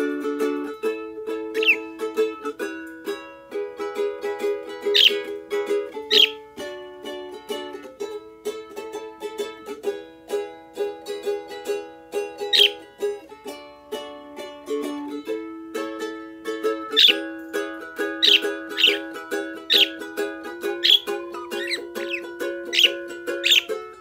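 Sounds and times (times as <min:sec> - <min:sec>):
small stringed instrument strummed: 0:00.0 - 0:24.0
bird chirping: 0:01.6 - 0:01.9, 0:04.9 - 0:05.4, 0:06.0 - 0:06.4, 0:12.4 - 0:12.9, 0:16.9 - 0:24.0.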